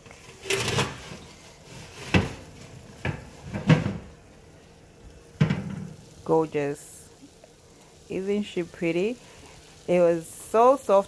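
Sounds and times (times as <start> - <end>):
oven door rattle: 0.4 - 1.2.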